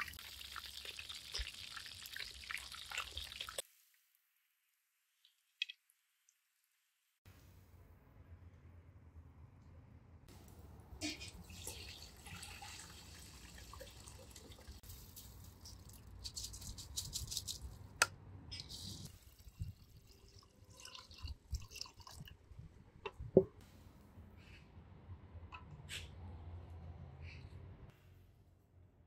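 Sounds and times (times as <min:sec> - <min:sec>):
water splashing and dripping: 0:00.0 - 0:03.9, 0:10.4 - 0:16.4, 0:19.0 - 0:22.7.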